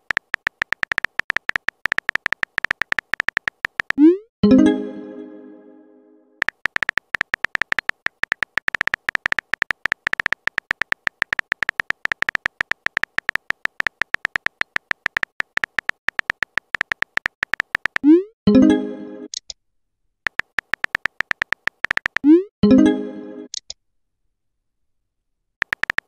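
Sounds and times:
phone keyboard typing clicks: 0:00.0 - 0:04.2, 0:06.4 - 0:18.2, 0:20.3 - 0:22.4, 0:25.6 - 0:26.0.

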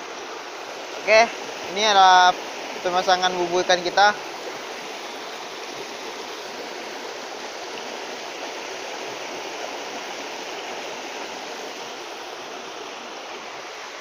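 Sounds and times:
river rushing over stones: 0:00.0 - 0:14.0.

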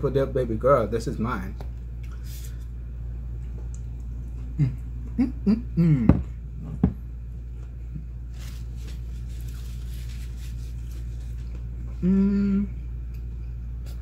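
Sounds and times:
steady low hum: 0:00.0 - 0:14.0
man humming with enjoyment: 0:04.5 - 0:06.4, 0:11.9 - 0:12.9.

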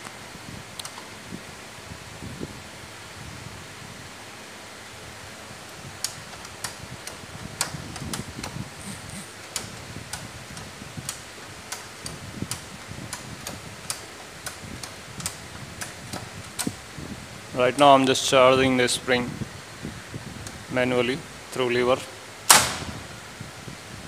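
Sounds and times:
steady background hum: 0:00.0 - 0:24.0
sharp mechanism clicks: 0:06.0 - 0:16.7
charging lever pumping: 0:06.0 - 0:16.8.

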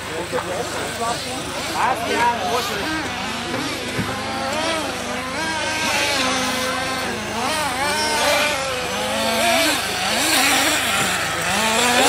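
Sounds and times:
small engines revving high: 0:00.0 - 0:12.0.

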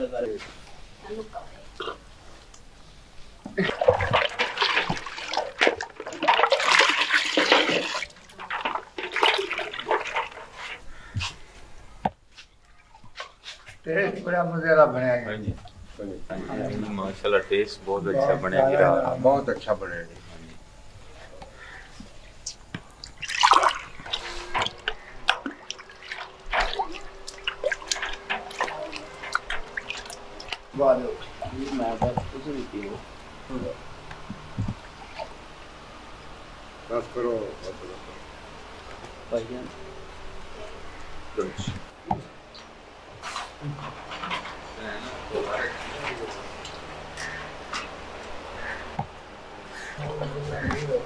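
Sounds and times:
jug dipping into liquid splashes: 0:03.6 - 0:10.8, 0:22.8 - 0:32.2
juice pouring into a steel tub: 0:03.6 - 0:10.8, 0:23.0 - 0:33.0.

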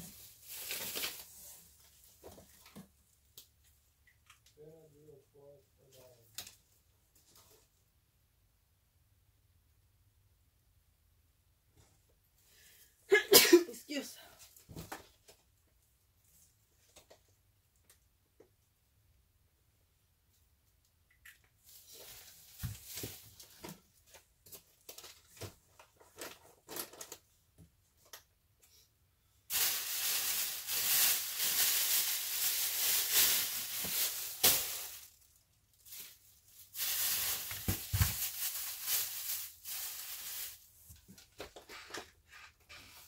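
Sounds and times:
plastic bag rustling: 0:00.0 - 0:02.6, 0:29.5 - 0:41.0.

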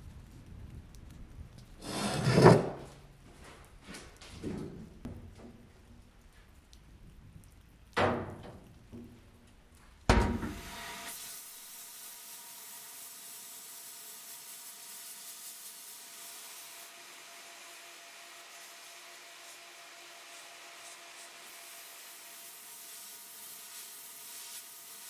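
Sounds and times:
sandblasting gun hissing: 0:10.4 - 0:25.0.

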